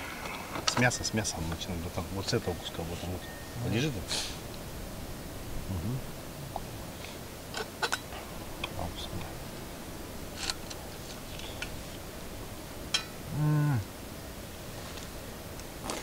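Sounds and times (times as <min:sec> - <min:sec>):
cow mooing: 0:13.3 - 0:13.9.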